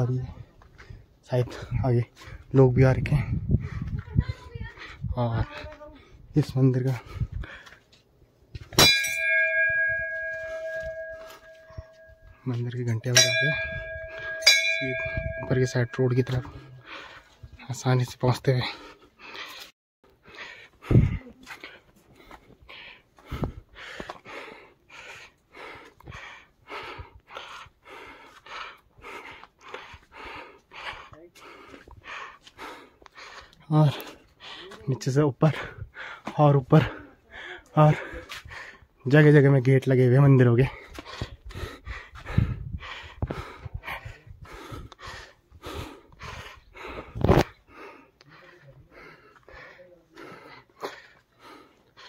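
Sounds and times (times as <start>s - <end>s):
person breathing hard: 7.0s - 7.9s, 16.4s - 17.6s, 18.6s - 34.9s, 35.5s - 39.0s, 40.7s - 52.0s
heavy panting: 9.7s - 17.6s, 18.5s - 39.0s, 40.6s - 52.0s.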